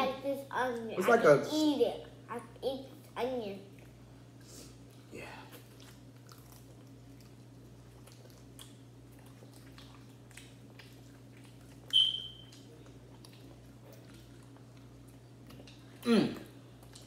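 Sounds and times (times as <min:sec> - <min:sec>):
low steady hum: 0:00.0 - 0:17.0
people chewing: 0:03.0 - 0:17.0
sharp high-pitched squeak: 0:11.9 - 0:12.5.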